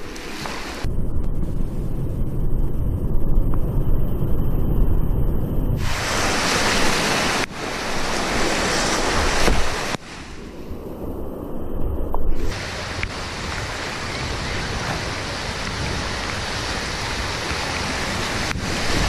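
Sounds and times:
wind buffeting microphone: 0:00.0 - 0:19.0
rushing whitewater: 0:05.8 - 0:10.5, 0:12.4 - 0:19.0.

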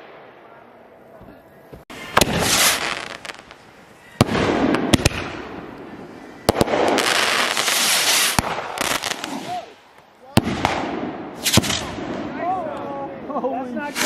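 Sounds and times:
fireworks bangs: 0:01.2 - 0:12.6
fireworks hiss and crackle: 0:01.8 - 0:12.4, 0:13.7 - 0:14.0.

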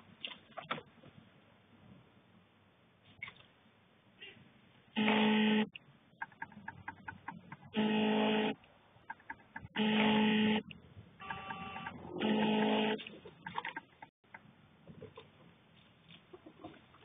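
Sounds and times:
electronic buzzer blare: 0:05.0 - 0:05.7, 0:07.7 - 0:08.6, 0:09.7 - 0:13.0.

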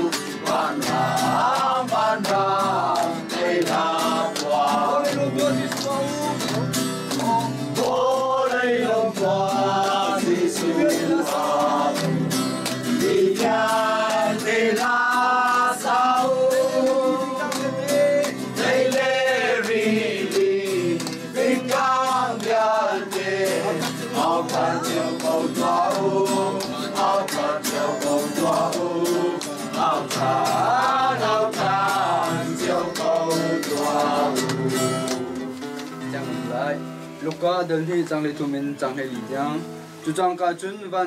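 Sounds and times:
group singing a carol: 0:00.0 - 0:35.6
hand clapping: 0:00.0 - 0:36.4
strummed acoustic guitar: 0:00.0 - 0:41.0.

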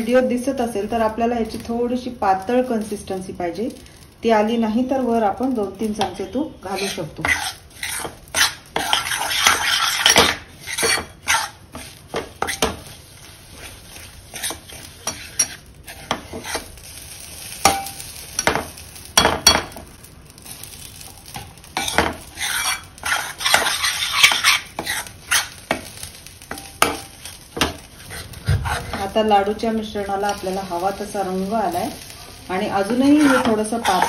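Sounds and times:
spoon scraping a steel pan: 0:06.7 - 0:12.7, 0:21.8 - 0:25.6, 0:32.8 - 0:34.0.

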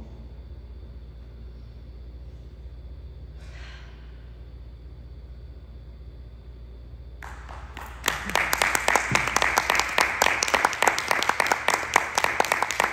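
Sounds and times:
audience applause: 0:07.2 - 0:12.9.

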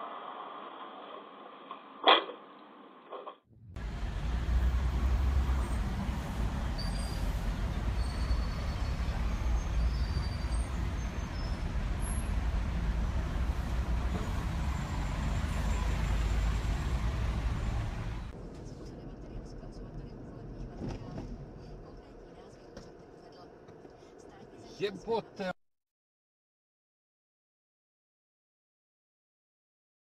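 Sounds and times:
road traffic rumble: 0:03.5 - 0:25.5
buses passing close by: 0:03.7 - 0:18.8.

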